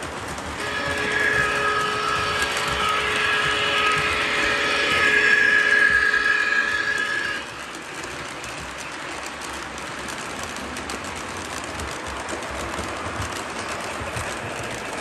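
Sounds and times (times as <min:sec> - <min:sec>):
model train running on track: 0:00.0 - 0:15.0
train whistle: 0:00.6 - 0:08.2.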